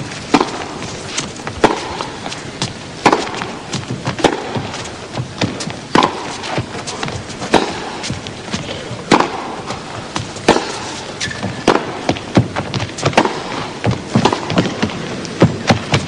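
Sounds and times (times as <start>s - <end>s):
tennis racket hitting ball: 0.2s - 16.0s
shoe squeak: 11.2s - 11.6s.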